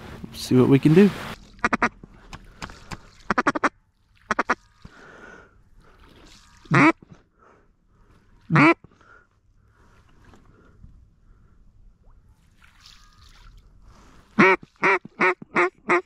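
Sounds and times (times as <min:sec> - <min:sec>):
duck call quacks: 0:01.6 - 0:01.9, 0:03.3 - 0:03.7, 0:04.3 - 0:04.6, 0:06.6 - 0:07.0, 0:08.5 - 0:08.8, 0:14.4 - 0:16.0.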